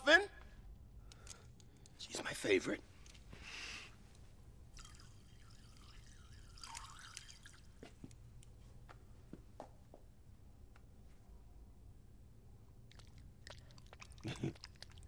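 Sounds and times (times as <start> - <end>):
liquid dripping: 4.7 - 8.0, 12.9 - 15.0
faint wavering sound: 4.8 - 7.8.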